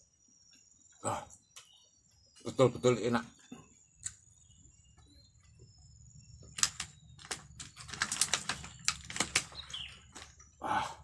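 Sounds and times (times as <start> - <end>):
sharp irregular clicks: 6.5 - 10.3.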